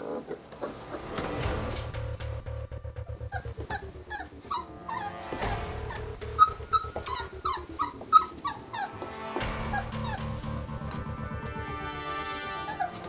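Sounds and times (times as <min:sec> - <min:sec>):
background music: 0:00.0 - 0:13.0
puppies whimpering and yipping: 0:05.9 - 0:09.1.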